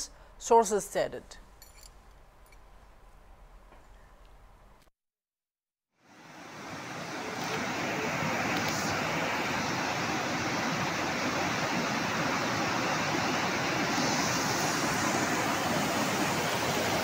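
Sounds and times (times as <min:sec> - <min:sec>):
muddy water rushing: 0:06.1 - 0:17.0.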